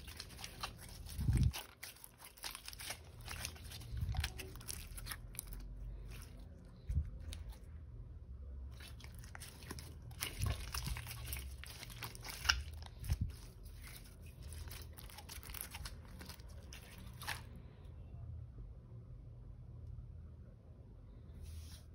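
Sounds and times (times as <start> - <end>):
slime crackling and popping: 0.0 - 7.6, 8.7 - 17.5.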